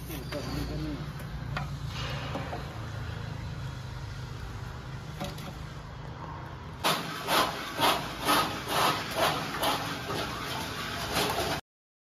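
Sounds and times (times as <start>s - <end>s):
trowel scraping mortar in metal pan: 6.9s - 11.6s.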